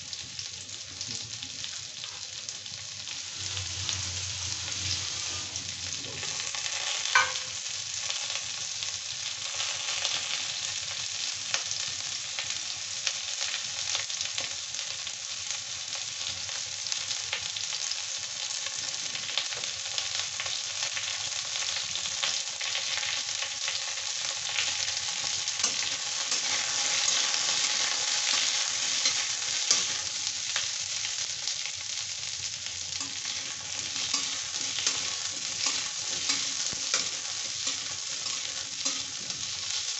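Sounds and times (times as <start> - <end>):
vegetables sizzling in hot oil: 0.0 - 39.9
metal spatula scraping pan: 33.0 - 39.8.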